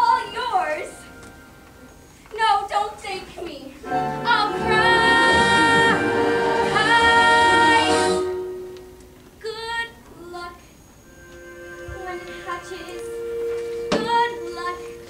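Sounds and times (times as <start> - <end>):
backing music: 3.8 - 9.2, 11.0 - 15.0
woman singing: 4.1 - 8.4, 12.0 - 15.0.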